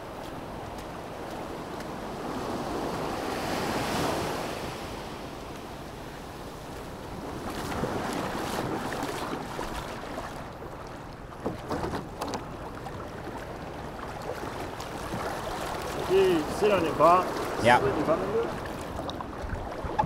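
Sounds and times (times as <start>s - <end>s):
small waves lapping over sand: 0.0s - 20.0s
wind buffeting microphone: 12.1s - 20.0s.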